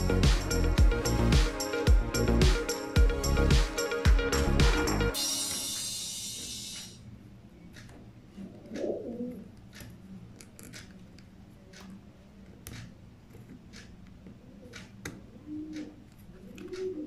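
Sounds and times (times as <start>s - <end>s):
low steady hum: 0.0s - 7.9s.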